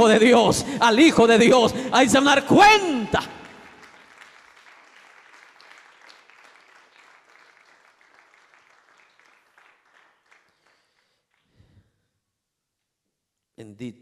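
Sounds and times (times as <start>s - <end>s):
congregation applauding: 2.2s - 11.7s.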